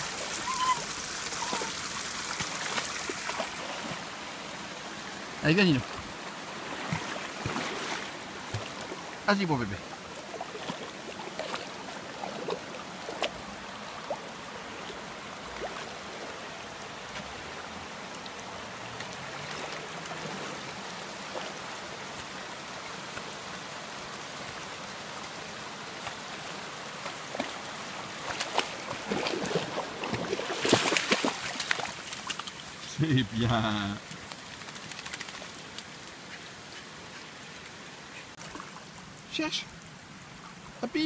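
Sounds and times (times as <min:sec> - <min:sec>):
river water running: 0:00.0 - 0:41.0
dogs splashing through water: 0:00.2 - 0:04.2, 0:06.5 - 0:09.1, 0:09.8 - 0:16.4, 0:18.8 - 0:22.4, 0:25.9 - 0:32.7, 0:34.1 - 0:36.0.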